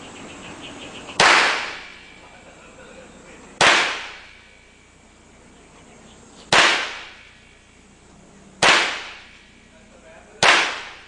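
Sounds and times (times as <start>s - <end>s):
gunshot with echo: 1.2s - 2.0s, 3.6s - 4.4s, 6.5s - 7.3s, 8.6s - 9.4s, 10.4s - 11.0s.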